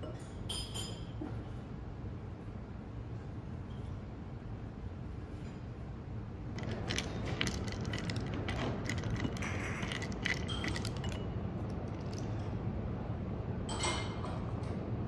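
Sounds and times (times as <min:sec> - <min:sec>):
chopsticks clinking against cup: 0:06.6 - 0:12.2.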